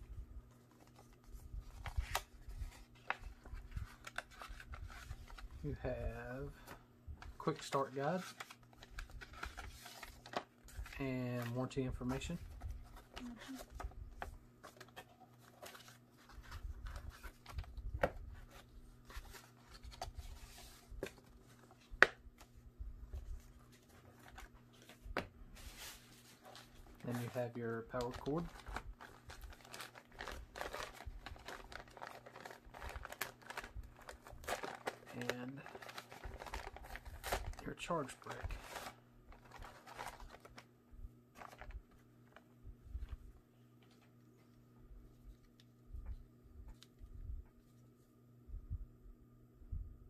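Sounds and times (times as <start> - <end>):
paper envelope rustling: 0.5 - 5.7, 6.6 - 40.7, 41.3 - 44.5
paper rustling and sliding: 23.1 - 27.3.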